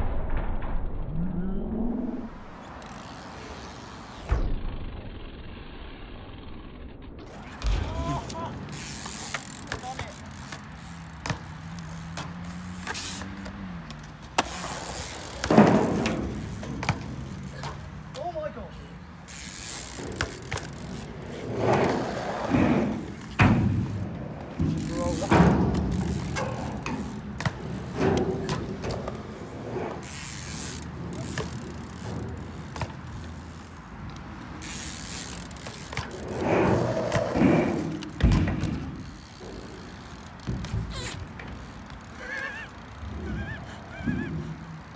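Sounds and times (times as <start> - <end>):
bike scraping on concrete: 2.3 - 4.4, 5.2 - 44.9
bicycle freewheel ticking: 2.6 - 21.4, 24.8 - 28.6, 30.0 - 36.4, 38.9 - 44.9
car engine humming: 7.2 - 44.9
heavy thud of bike landing: 19.5 - 29.6, 35.0 - 39.2.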